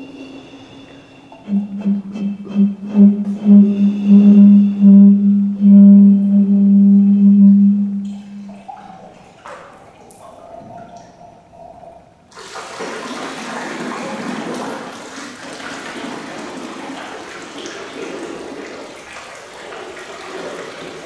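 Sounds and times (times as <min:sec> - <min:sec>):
running splashing water: 0:08.0 - 0:21.0.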